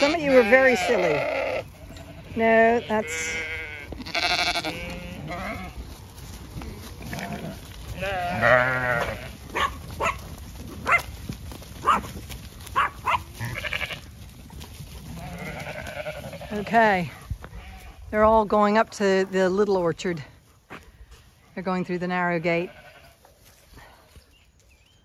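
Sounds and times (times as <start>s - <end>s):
sheep bleating: 0.0s - 5.8s, 6.7s - 9.6s, 13.1s - 14.1s, 15.1s - 18.3s, 22.2s - 23.2s.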